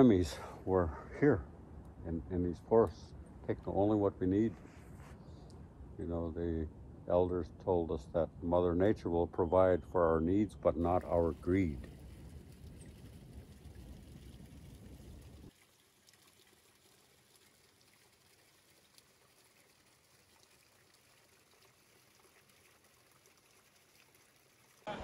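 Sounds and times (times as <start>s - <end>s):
stream water trickling: 10.7s - 24.9s.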